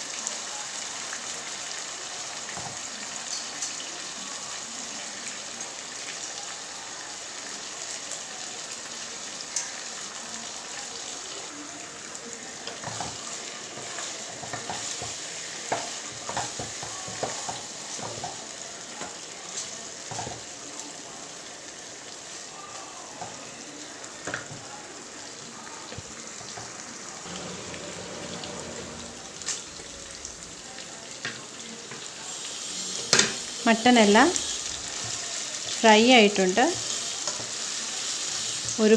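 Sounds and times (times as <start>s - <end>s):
meat sizzling in oil: 0.0s - 38.9s
wooden spatula scraping pot: 27.3s - 30.5s.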